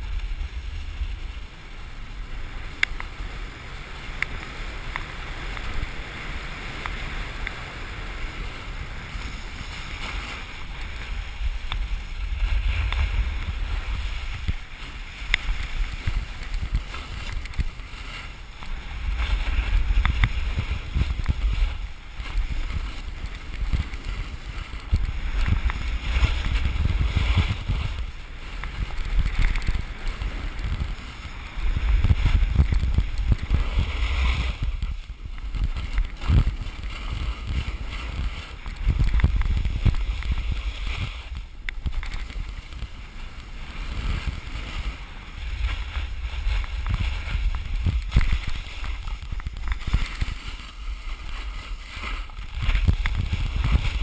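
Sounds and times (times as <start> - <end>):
snowboard scraping on snow: 0.0 - 54.0
wind buffeting microphone: 0.0 - 54.0.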